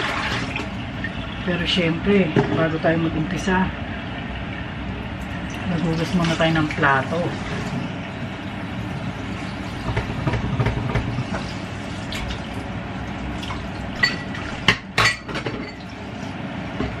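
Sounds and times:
tap water running into sink: 9.4 - 12.7.

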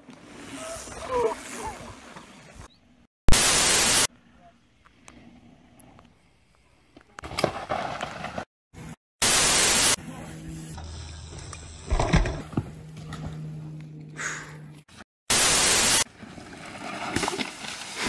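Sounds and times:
burst of static: 3.3 - 4.1, 9.2 - 10.0, 15.3 - 16.0
steady low hum: 10.0 - 15.0.

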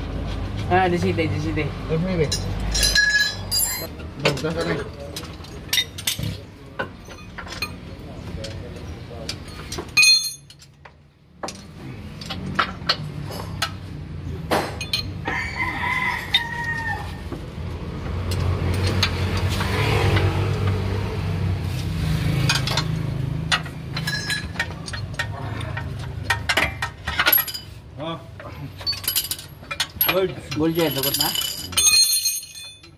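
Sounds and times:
rooster crowing: 15.2 - 17.2
metal clinks of hand tools: 28.7 - 32.9.

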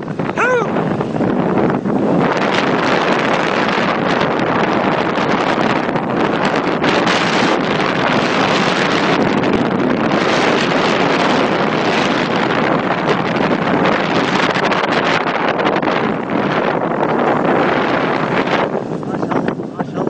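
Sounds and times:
wind on microphone: 0.0 - 20.0.

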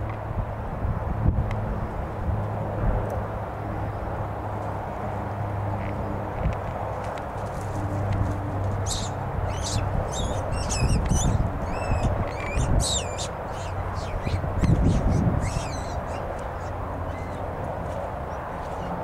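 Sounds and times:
steady low hum: 0.0 - 19.0
rabbit squealing: 8.8 - 17.5.

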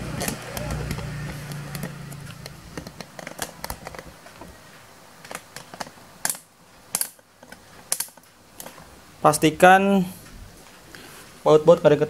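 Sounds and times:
small parts clicking and tapping: 0.2 - 4.5, 5.2 - 8.8.

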